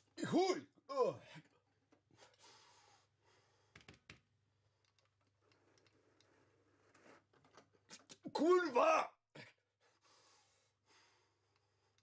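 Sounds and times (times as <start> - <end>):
faint clicks: 4.8 - 6.4.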